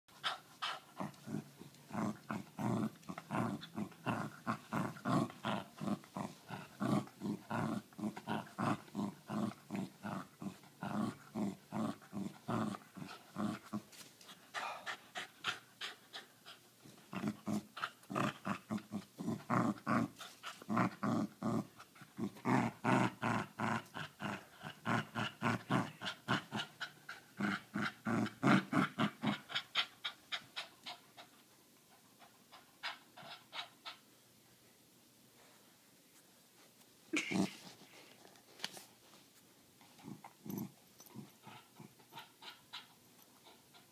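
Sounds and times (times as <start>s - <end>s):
dog growling: 0.6s - 13.8s, 17.1s - 31.3s, 39.9s - 43.9s.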